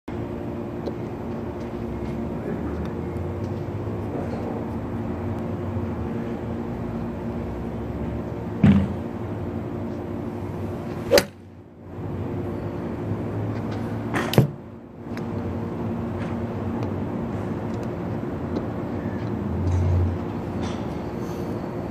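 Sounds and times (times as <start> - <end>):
mechanical hum: 0.1 - 21.9
golf club striking ball: 11.1 - 11.4.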